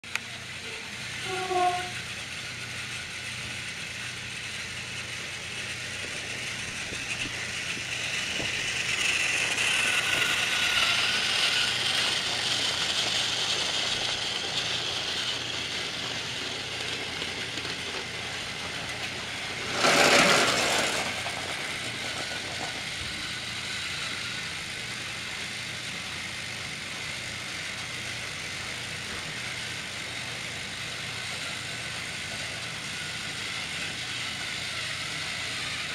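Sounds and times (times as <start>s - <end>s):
toy train motor whirring: 0.1s - 35.9s
toy train wheels rattling: 0.1s - 35.9s
loud clatter: 5.0s - 23.5s.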